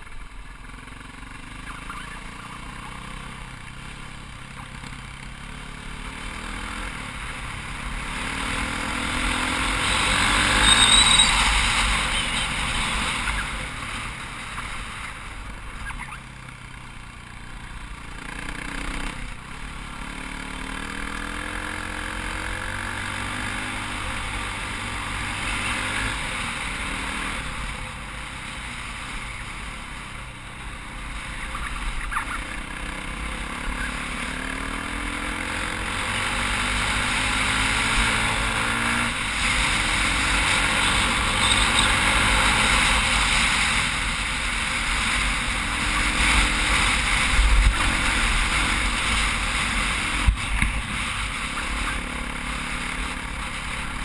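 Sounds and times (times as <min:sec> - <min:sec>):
dirt bike engine revving: 0:00.7 - 0:54.0.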